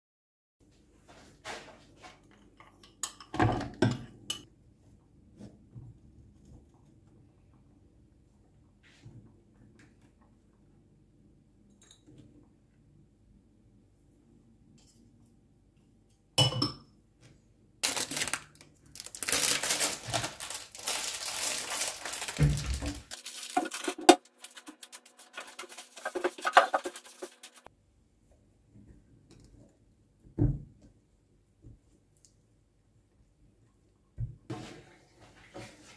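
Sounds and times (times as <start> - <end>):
rustling and scraping: 19.3 - 27.7.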